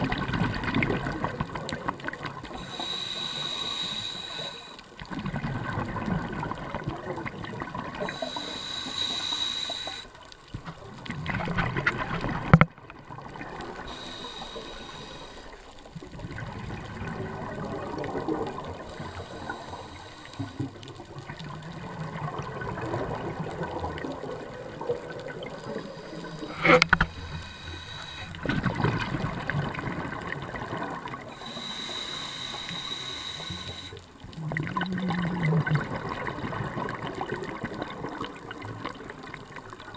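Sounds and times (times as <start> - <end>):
regulator inhalation hiss: 2.5 - 5.0, 8.0 - 10.2, 13.8 - 15.9, 18.8 - 20.8, 25.6 - 28.5, 31.3 - 34.1
exhaled bubbles rushing: 5.0 - 8.2, 15.9 - 19.6, 20.6 - 27.5, 28.3 - 31.3, 34.2 - 39.8.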